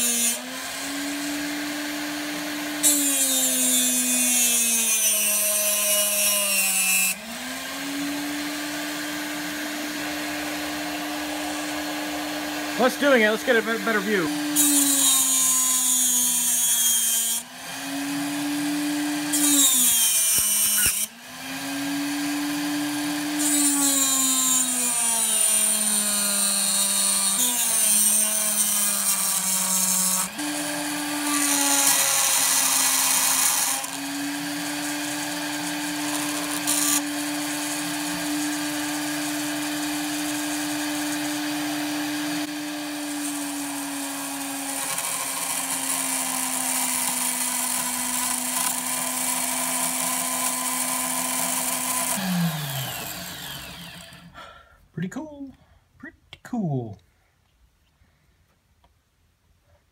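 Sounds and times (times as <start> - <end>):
cutter cutting metal: 0.0 - 54.3
rotary tool motor whine: 29.2 - 54.3.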